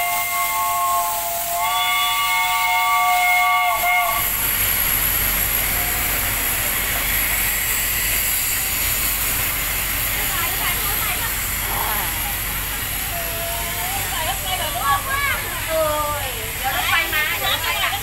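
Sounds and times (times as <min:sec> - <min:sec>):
steam locomotive whistle: 0:00.0 - 0:04.5
steam hissing: 0:00.0 - 0:18.0.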